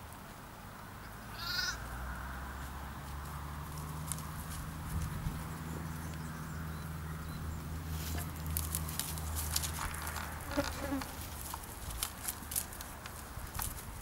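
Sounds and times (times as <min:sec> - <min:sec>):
soft low sheep calls: 0:01.3 - 0:01.9
sheep cropping grass: 0:03.0 - 0:05.6, 0:07.9 - 0:14.0.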